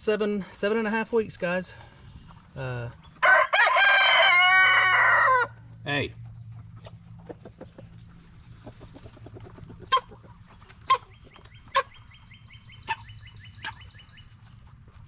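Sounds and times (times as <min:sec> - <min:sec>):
chickens clucking: 0:00.2 - 0:03.4, 0:05.0 - 0:15.0
chickens squawking: 0:02.0 - 0:05.8, 0:06.6 - 0:15.0
high chirping: 0:10.9 - 0:14.5.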